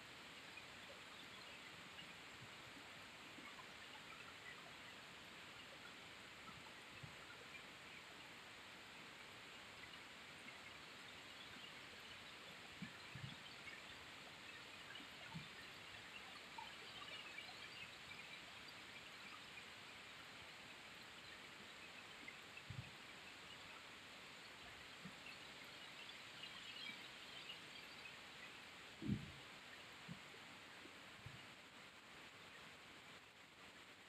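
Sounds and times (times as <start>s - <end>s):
faint steady rainfall: 0.0s - 34.0s
soft low thumps: 29.0s - 29.4s.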